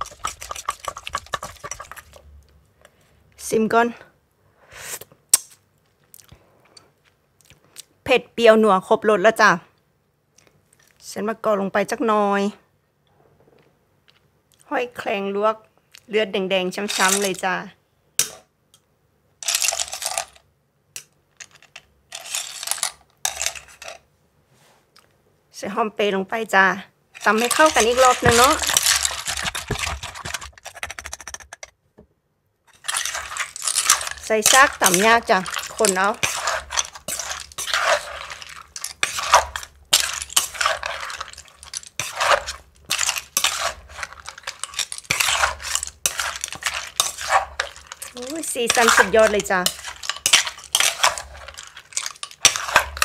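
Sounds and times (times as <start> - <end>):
pestle scraping in a mortar: 0.0 - 2.2, 27.2 - 31.7, 32.7 - 53.0
cockle shells clattering: 32.8 - 53.0.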